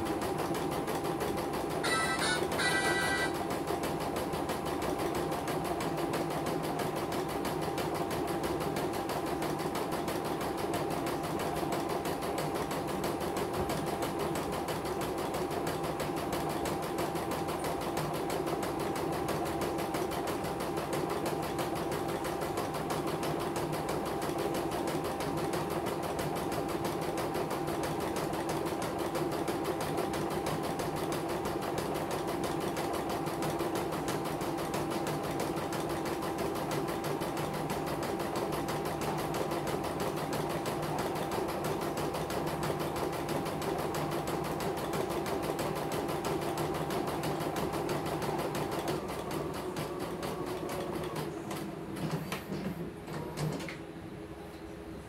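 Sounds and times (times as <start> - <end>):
embroidery machine stitching: 0.0 - 53.8.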